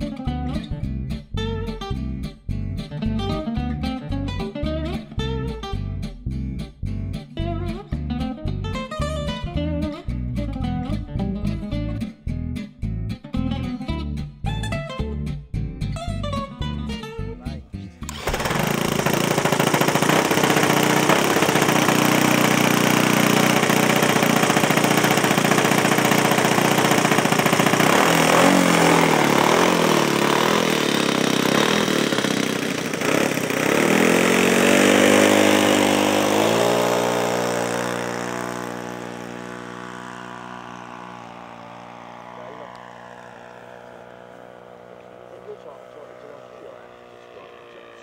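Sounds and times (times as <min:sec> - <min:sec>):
electric starter whirring: 0:18.0 - 0:48.0
model aircraft engine running: 0:18.1 - 0:48.0.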